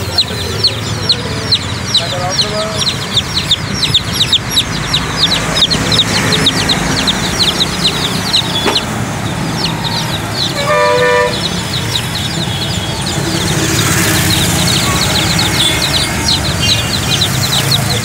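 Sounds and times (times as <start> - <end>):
chicks peeping: 0.0 - 18.0
low traffic rumble: 0.0 - 18.0
vehicle horn: 9.9 - 13.2.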